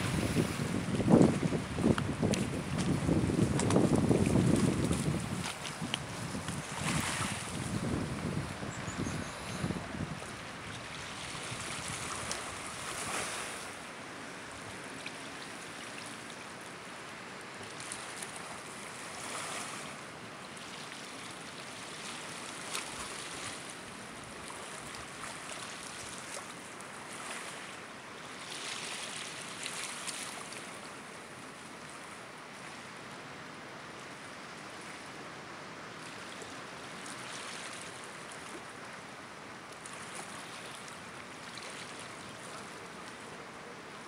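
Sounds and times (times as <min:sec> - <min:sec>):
small waves lapping on pebbles: 0:00.0 - 0:13.9, 0:17.6 - 0:32.9, 0:36.0 - 0:38.9, 0:39.7 - 0:43.3.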